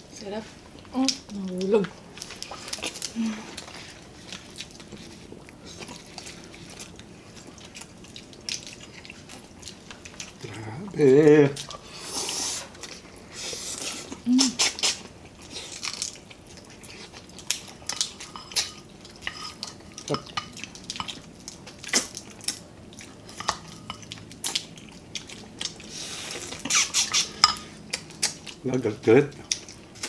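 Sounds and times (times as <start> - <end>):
chewing: 0.6 - 30.0.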